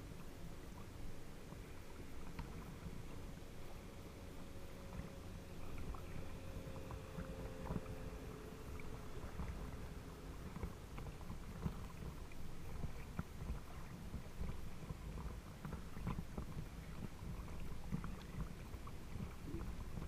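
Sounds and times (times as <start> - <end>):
distant motorboat engine drone: 0.0 - 20.0
water lapping and splashing: 0.0 - 20.0
wind on microphone: 4.8 - 20.0.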